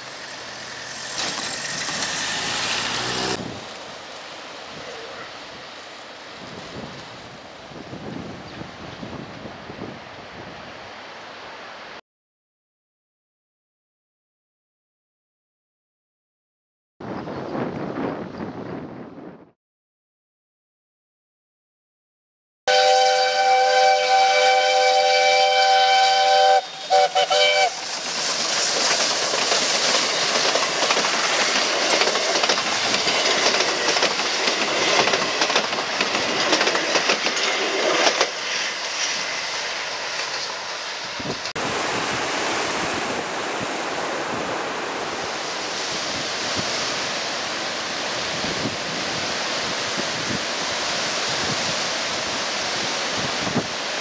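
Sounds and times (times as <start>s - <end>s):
train wheels clattering on rails: 0.0s - 3.4s, 26.7s - 40.6s
wind: 0.0s - 12.0s, 17.0s - 19.6s, 22.7s - 54.0s
steam locomotive whistle: 22.7s - 28.0s.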